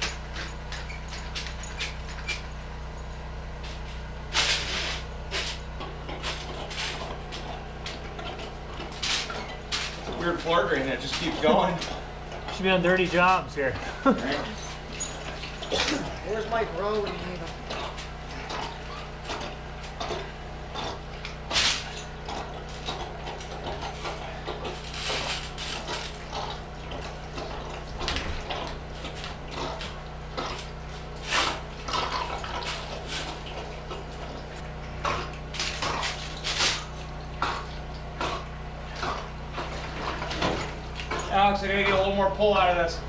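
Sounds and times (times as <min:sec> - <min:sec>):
steady low hum: 0:00.0 - 0:43.0
water splashing and sloshing: 0:00.0 - 0:43.0
metal clinks: 0:14.2 - 0:16.2.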